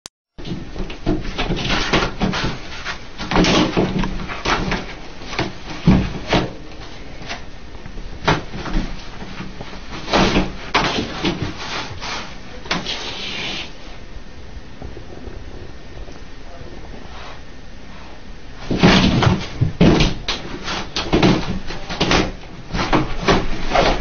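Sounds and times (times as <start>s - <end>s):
toilet paper rustling and ripping: 8.2s - 14.0s, 18.6s - 24.0s.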